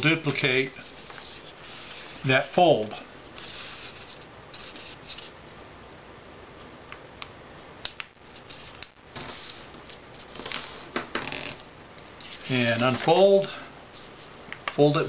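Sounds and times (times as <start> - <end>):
paper rustling: 0.8 - 5.4, 8.2 - 14.3
paper crinkling: 8.2 - 13.1.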